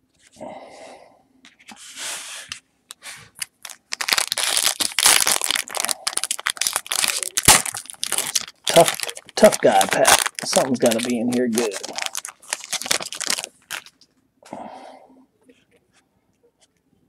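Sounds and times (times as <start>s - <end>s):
foil wrapper crinkling: 3.3s - 14.1s.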